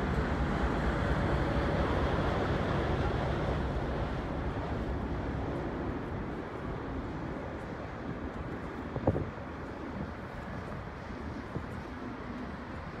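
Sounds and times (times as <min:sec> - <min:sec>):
wind on microphone: 0:08.0 - 0:13.0.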